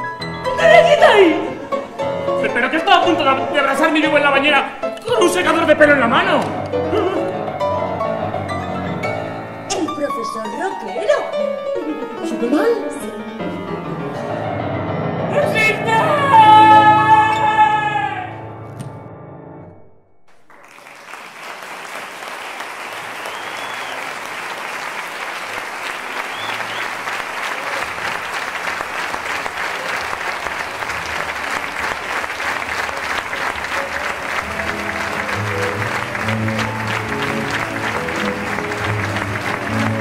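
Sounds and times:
music: 0.0s - 20.3s, 26.3s - 40.0s
audience applauding: 20.3s - 40.0s
short whistles: 23.2s - 24.1s, 26.2s - 27.0s.

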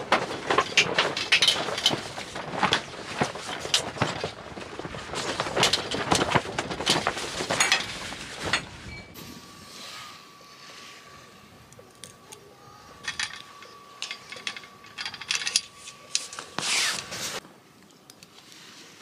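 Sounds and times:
awning fabric rustling and flapping: 0.0s - 8.9s.

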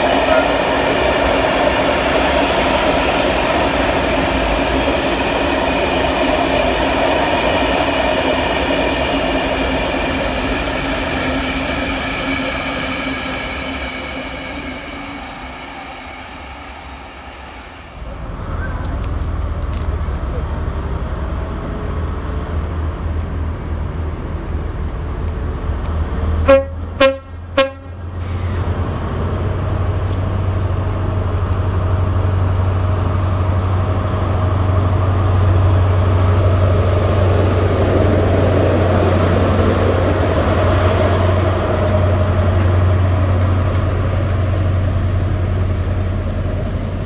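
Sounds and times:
diesel train drone: 0.0s - 47.0s
train horn blasts: 26.4s - 28.0s.

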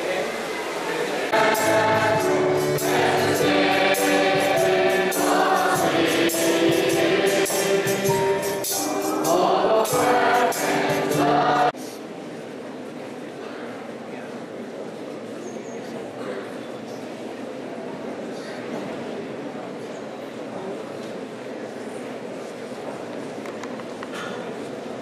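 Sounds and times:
group singing: 0.0s - 11.8s
steady percussion beat: 1.4s - 11.7s.

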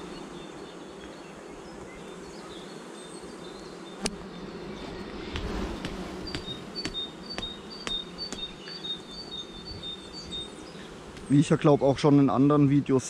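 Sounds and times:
honeybees buzzing: 0.0s - 13.0s
sharp knock: 5.3s - 8.5s.

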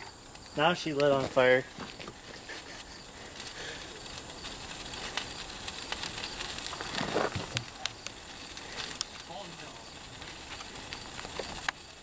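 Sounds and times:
fire crackling and popping: 0.0s - 12.0s.

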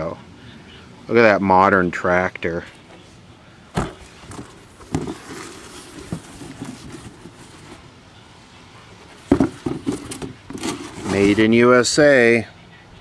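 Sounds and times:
soft rustling and rubbing: 4.0s - 7.9s.

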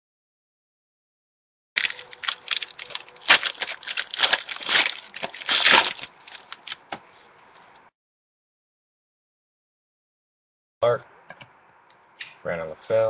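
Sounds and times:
foil wrapper tearing and crinkling: 1.8s - 6.8s.

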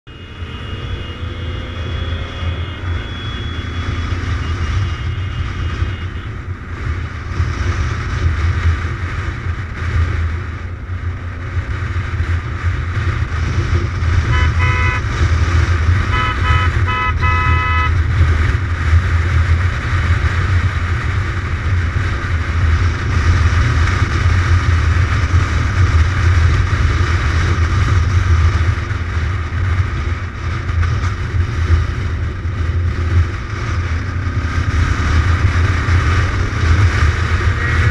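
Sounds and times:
horn toots: 0.1s - 6.5s, 14.2s - 18.2s, 37.2s - 37.9s
motorcycle engine running: 0.1s - 37.9s
wind rushing over microphone: 0.1s - 37.9s.

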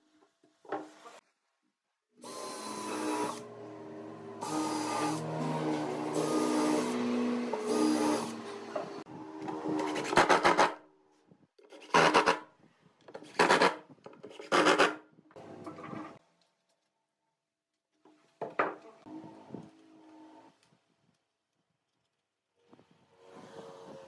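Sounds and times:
cordless drill driving a screw: 2.2s - 3.5s, 4.4s - 8.7s.

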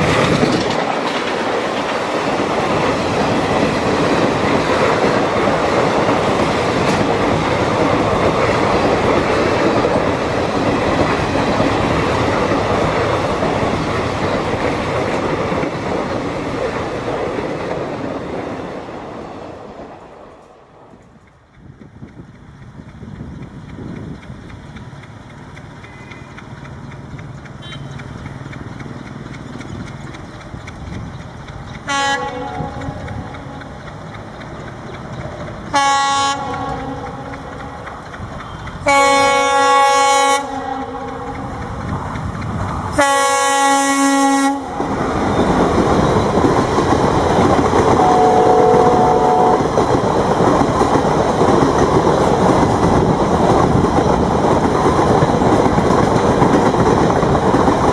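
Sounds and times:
diesel locomotive rumble: 0.0s - 57.9s
train wheels clickety-clack: 0.0s - 57.9s
locomotive horn blasts: 27.6s - 27.9s, 31.9s - 32.9s, 35.7s - 37.2s, 38.8s - 41.3s, 43.0s - 44.7s, 48.0s - 49.7s.

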